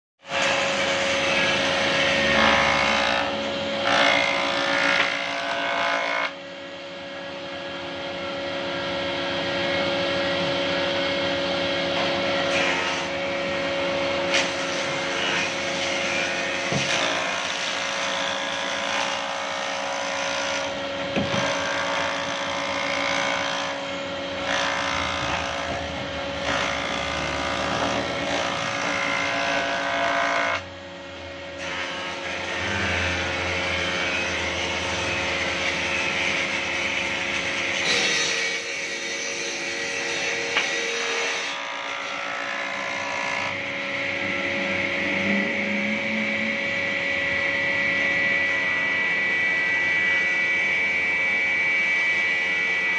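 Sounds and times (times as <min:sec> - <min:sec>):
cutterhead shaving wood: 0:00.3 - 0:06.4, 0:12.0 - 0:30.7
jointer-planer motor hum: 0:00.3 - 0:38.0, 0:40.2 - 0:52.8.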